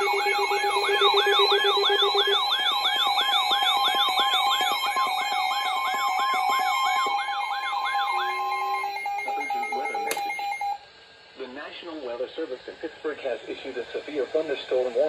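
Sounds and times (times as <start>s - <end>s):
rising siren sweep: 0.0s - 10.7s
steady alert tones: 0.0s - 10.8s.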